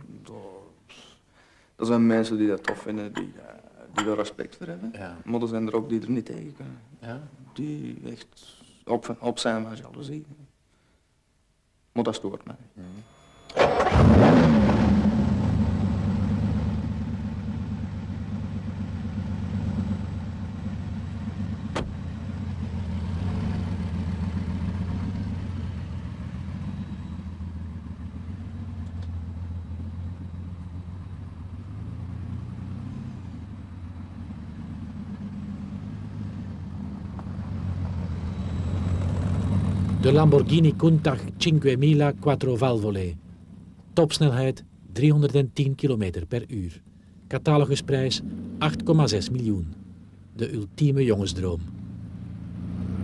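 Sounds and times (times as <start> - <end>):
car engine running at low revs: 13.1 - 53.0.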